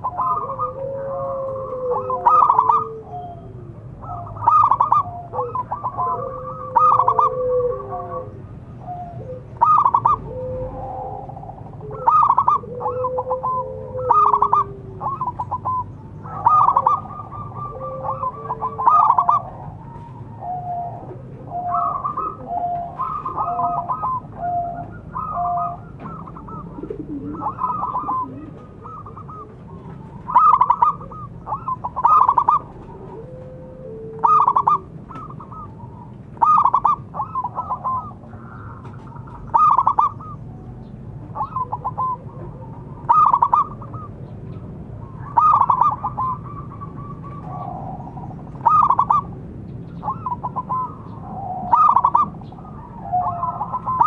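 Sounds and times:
dove cooing: 0.0s - 54.0s.

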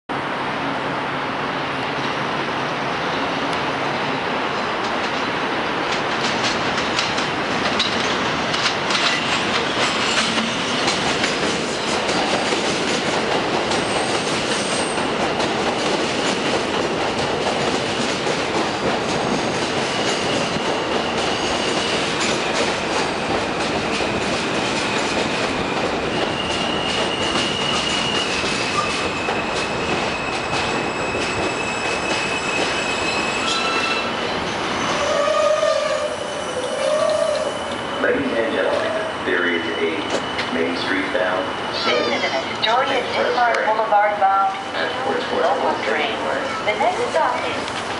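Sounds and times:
train wheels clattering over rail joints: 5.9s - 33.8s
high wheel squeal: 19.3s - 22.6s, 24.1s - 43.3s.

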